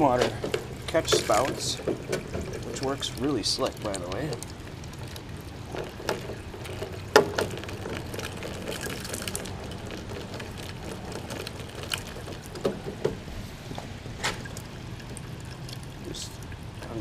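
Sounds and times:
low background rumble: 0.0s - 17.0s
plastic spout knocks and clicks: 0.1s - 13.3s.

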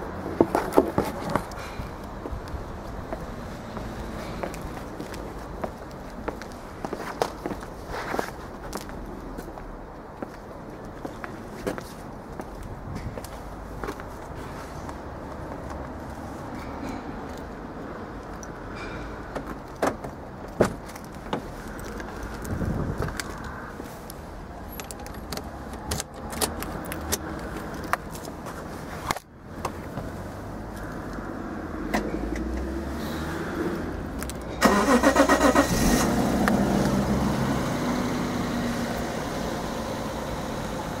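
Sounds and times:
car door and keys clicking: 24.7s - 27.2s
starter cranking engine: 34.6s - 36.1s.

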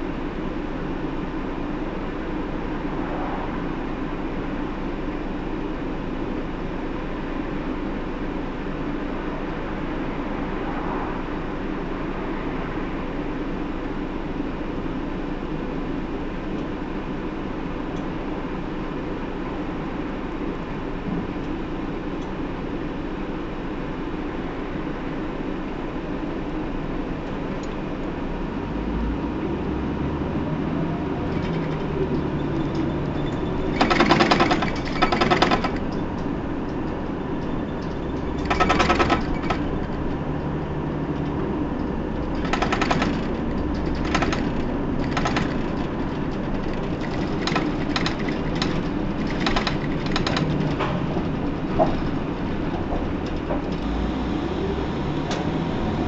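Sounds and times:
bus diesel engine droning: 0.0s - 56.0s
rapid rattling clatter: 31.2s - 53.8s.

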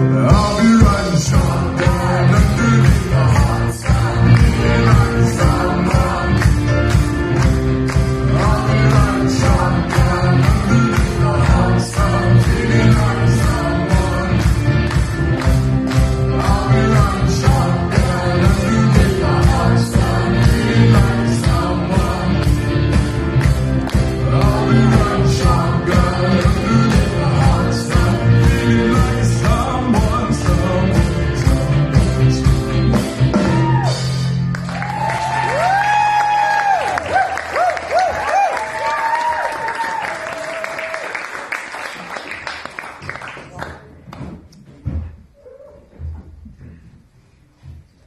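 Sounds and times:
person singing: 0.0s - 7.2s, 7.9s - 23.1s, 23.7s - 34.4s
guitar: 0.0s - 35.4s
bass: 0.0s - 40.6s
drum beat: 0.3s - 33.8s.

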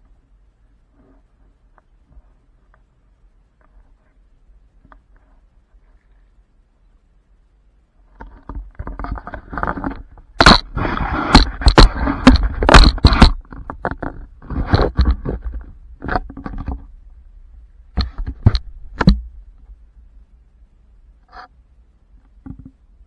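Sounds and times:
scraping against camera: 0.9s - 2.9s, 3.6s - 6.4s, 8.0s - 17.0s, 17.9s - 19.3s, 21.2s - 21.6s.

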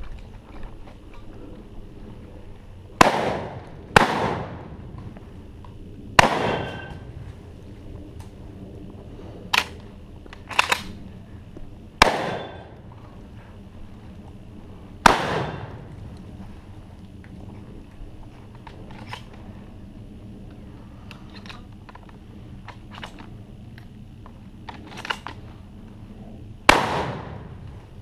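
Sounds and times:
shotgun blasts with echo: 3.0s - 4.8s, 6.2s - 7.0s, 12.0s - 12.8s, 15.0s - 15.9s, 26.7s - 27.6s
sharp cracks: 3.0s - 7.2s, 9.5s - 11.0s, 12.0s - 12.9s, 15.0s - 16.3s, 26.6s - 28.0s.

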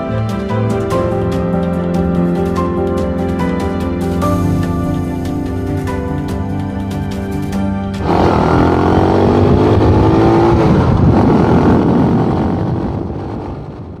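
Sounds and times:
motorcycle engine revving: 8.0s - 14.0s.

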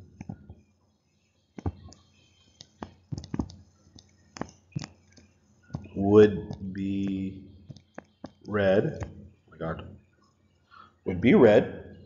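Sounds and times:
stylus tapping tablet screen: 0.0s - 0.7s, 1.5s - 10.3s.

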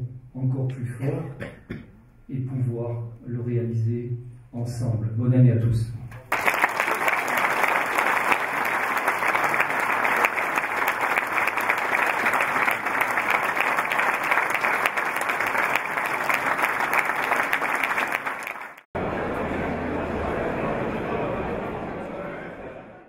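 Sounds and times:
audience applauding: 6.3s - 18.9s.

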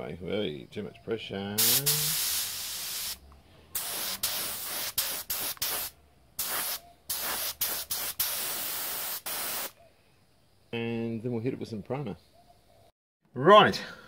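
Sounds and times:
spray gun hissing: 1.6s - 3.2s, 3.8s - 9.8s.

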